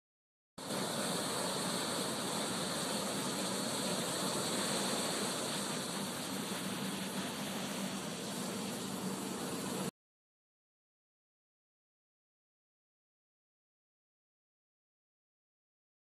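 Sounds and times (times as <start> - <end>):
ocean surf breaking: 0.6 - 9.9.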